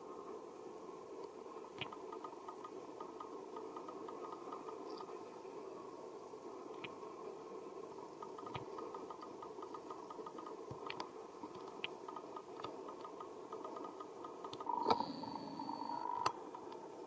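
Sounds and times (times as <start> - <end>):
steady background hum: 0.0 - 17.0
soft clicks: 1.2 - 5.2, 6.7 - 7.0, 8.2 - 15.1.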